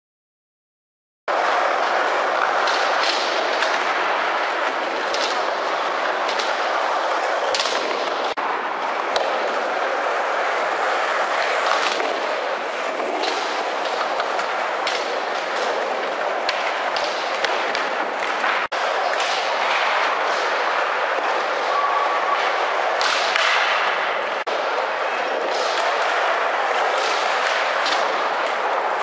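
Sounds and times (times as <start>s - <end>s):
skateboard wheels rolling: 1.3s - 29.0s
skateboard clacks popping and landing: 1.4s - 8.4s.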